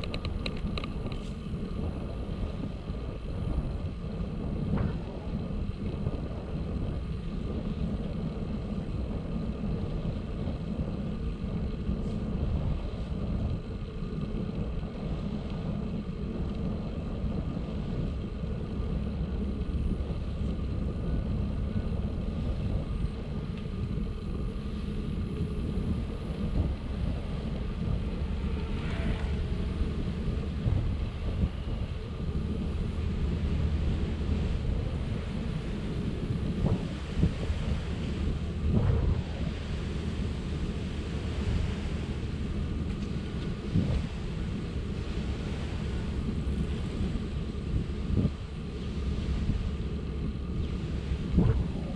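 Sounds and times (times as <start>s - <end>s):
bicycle tyres rumbling: 0.0s - 51.9s.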